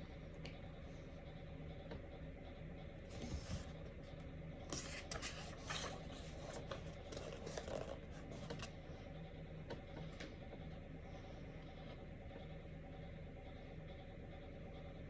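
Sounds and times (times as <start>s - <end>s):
faint room hum: 0.0s - 15.0s
book page turning: 4.7s - 8.7s.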